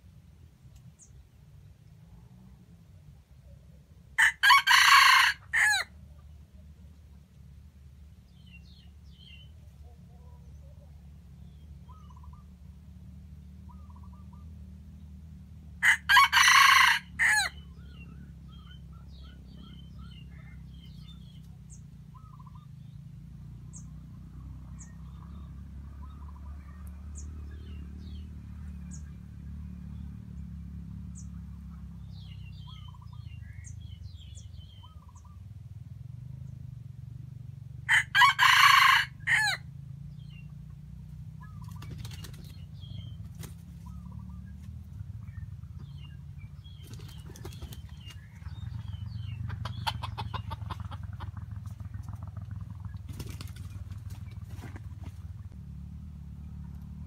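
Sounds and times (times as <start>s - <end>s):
rooster crowing: 4.2s - 5.9s, 15.8s - 17.6s, 37.9s - 39.7s
small birds chirping: 8.0s - 15.3s, 17.5s - 29.2s, 29.8s - 35.6s, 40.1s - 55.6s.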